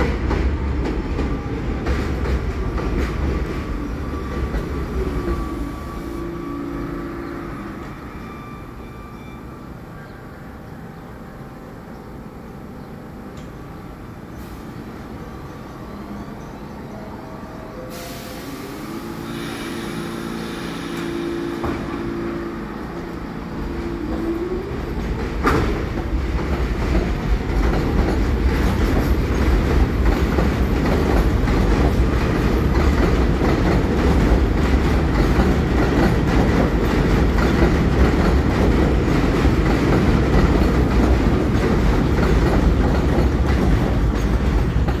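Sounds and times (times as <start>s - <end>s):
train wheels clickety-clack: 0.0s - 5.6s, 23.8s - 45.0s
train hum rising in tone: 0.0s - 45.0s.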